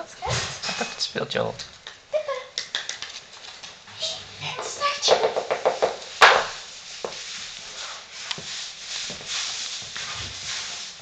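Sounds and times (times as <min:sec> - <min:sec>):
footsteps on wooden floor: 0:03.4 - 0:10.8.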